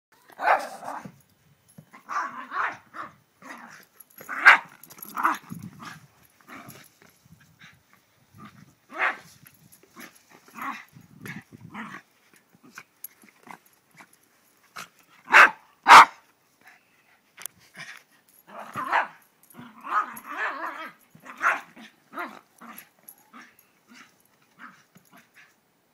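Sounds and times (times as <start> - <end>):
small dog barking: 0.3 - 1.1, 4.3 - 5.4, 8.9 - 9.3, 15.3 - 16.2, 18.5 - 22.4.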